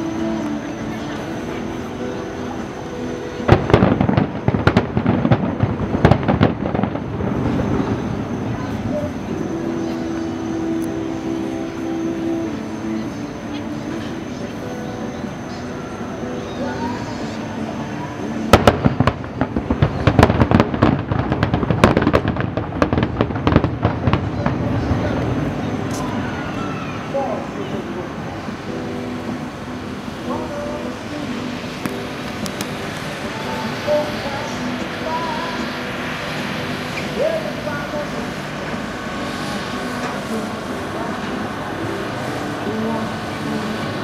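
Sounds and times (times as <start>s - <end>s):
fireworks bangs and crackles: 3.4s - 10.3s, 17.8s - 28.0s.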